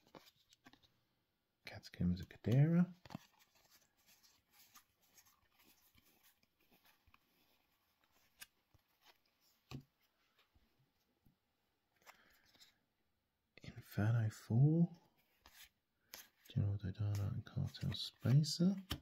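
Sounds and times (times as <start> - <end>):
trading cards rustling: 0.0 - 0.9, 2.2 - 10.5.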